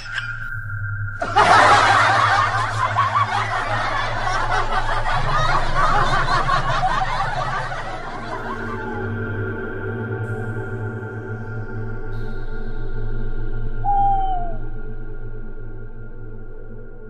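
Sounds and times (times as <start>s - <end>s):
voices snickering and chuckling: 1.2s - 9.1s.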